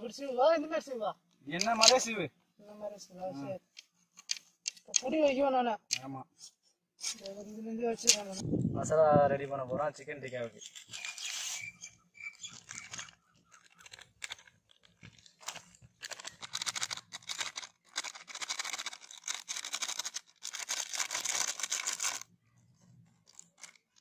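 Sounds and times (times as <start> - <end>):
plastic sachets crinkling and tearing: 9.5 - 22.3, 23.1 - 24.0.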